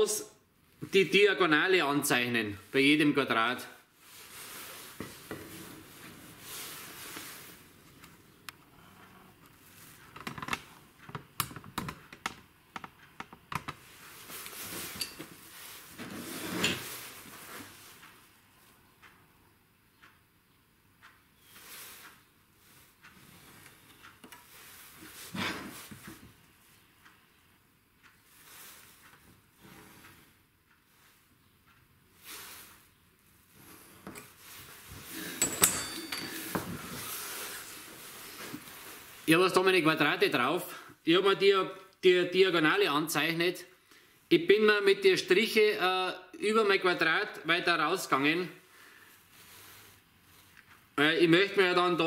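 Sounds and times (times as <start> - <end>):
steel ruler sliding scrape: 16.1 - 16.8
tools clattering on workbench: 35.2 - 37.0.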